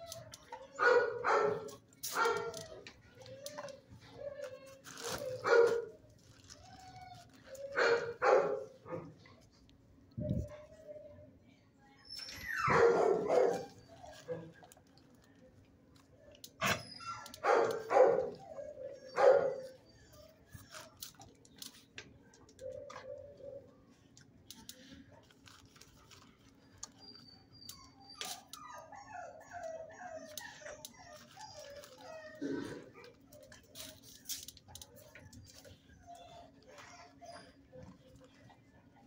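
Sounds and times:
dog barking: 0.8s - 2.6s, 5.4s - 5.9s, 7.8s - 9.1s, 12.6s - 13.7s, 17.4s - 18.4s, 19.1s - 19.8s
faint dog yips: 12.0s - 14.6s, 16.2s - 20.9s, 26.6s - 38.5s.

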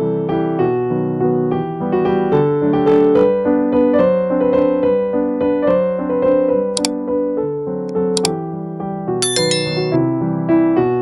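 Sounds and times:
light piano melody: 0.0s - 11.0s
high clicks: 9.2s - 10.0s.

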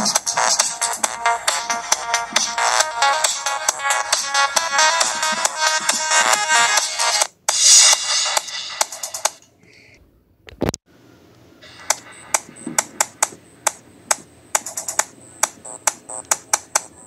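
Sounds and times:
music: 0.0s - 9.4s, 11.6s - 12.6s
sharp clicks and taps: 11.9s - 17.0s.

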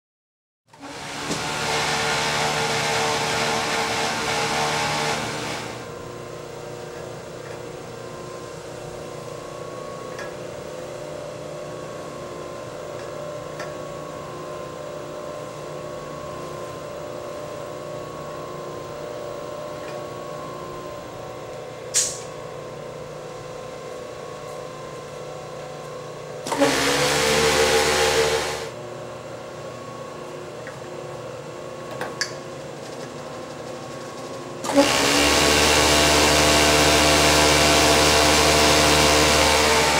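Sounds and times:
overlock sewing head running: 0.7s - 5.9s, 26.4s - 28.7s, 34.2s - 39.9s
sewing machine humming: 0.7s - 5.9s, 26.5s - 28.8s, 34.6s - 39.9s
sharp hiss: 21.9s - 22.3s.

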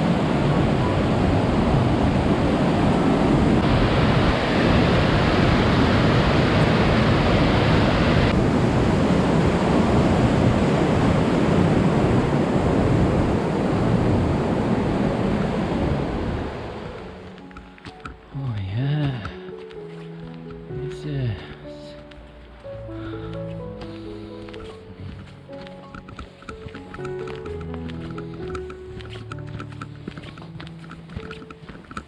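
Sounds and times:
water rushing over rocks: 0.0s - 17.3s.

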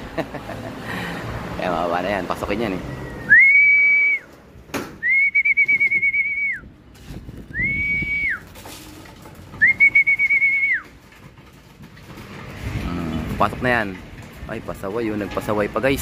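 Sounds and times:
long high whistles: 2.9s - 4.3s, 5.0s - 6.7s.

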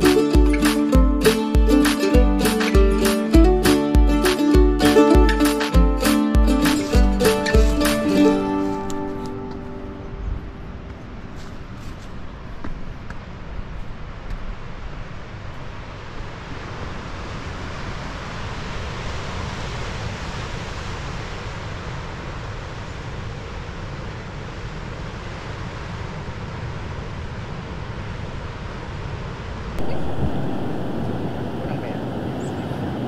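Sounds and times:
wind on microphone: 29.7s - 33.0s
surf washing on rocks: 29.8s - 33.0s.

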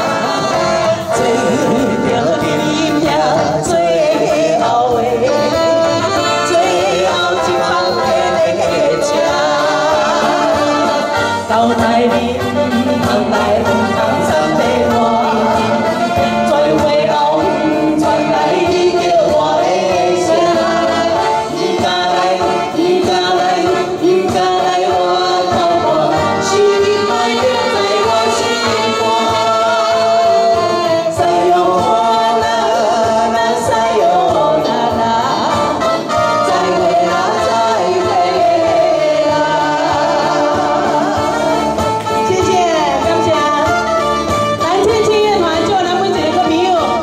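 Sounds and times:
man singing through microphone: 0.0s - 47.0s
saxophone playing: 4.7s - 16.7s, 35.3s - 46.0s.

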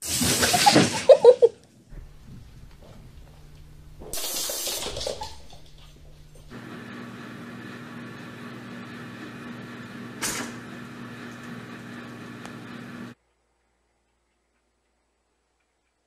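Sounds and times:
low hum: 1.9s - 6.6s
toaster popping up: 2.0s - 6.5s, 10.2s - 10.6s.

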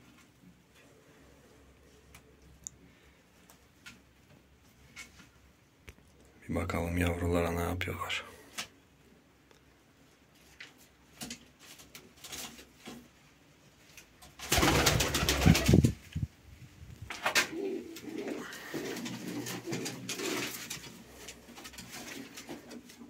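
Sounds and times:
pigeons cooing: 17.3s - 22.8s.

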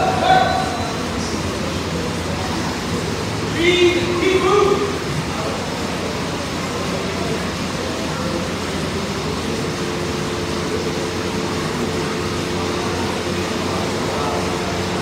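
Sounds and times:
gym rumble and hiss: 0.0s - 15.0s.

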